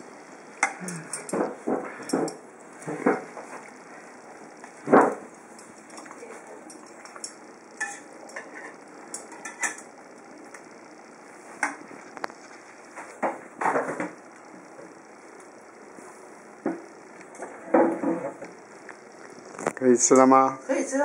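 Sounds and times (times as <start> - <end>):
utensils clinking on metal pot: 5.6 - 9.9.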